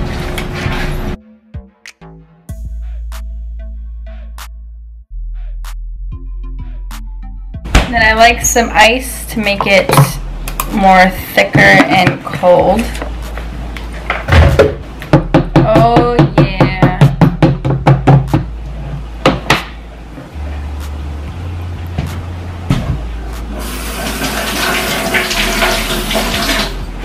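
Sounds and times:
water running from a tap: 23.6s - 26.9s.

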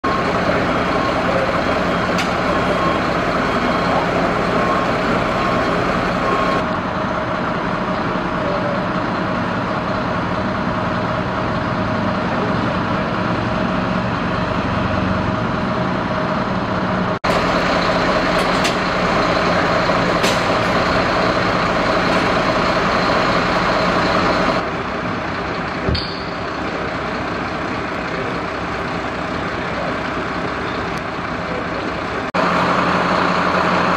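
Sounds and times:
diesel engines humming: 0.0s - 33.9s.

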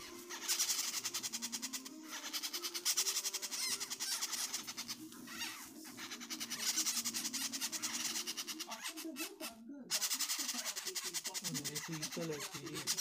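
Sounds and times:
parrot chicks begging calls: 0.0s - 13.0s.

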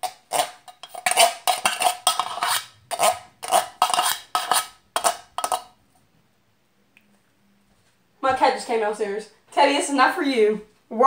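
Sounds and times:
utensil scraping metal can: 0.0s - 5.7s.

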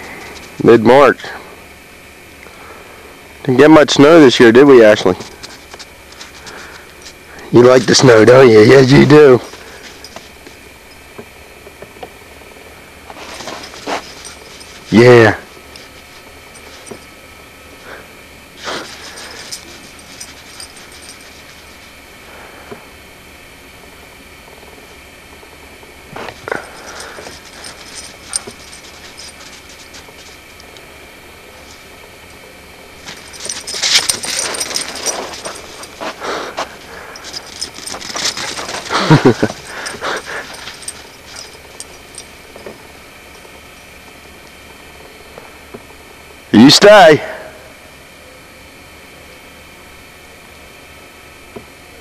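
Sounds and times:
noisy rustling: 4.8s - 45.6s
dog vocalizing: 35.4s - 41.4s.

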